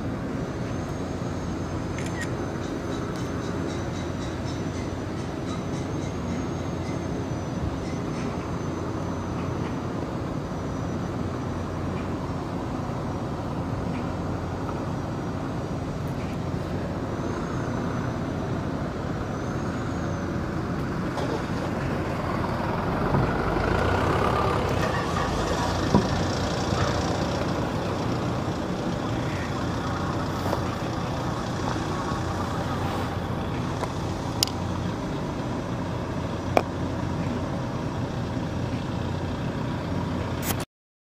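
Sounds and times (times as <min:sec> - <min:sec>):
boat engine droning: 0:00.0 - 0:40.5.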